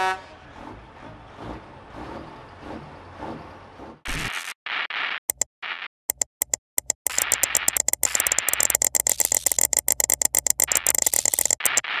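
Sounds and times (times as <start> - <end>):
rapid stuttering sharp clicks: 6.1 - 12.0.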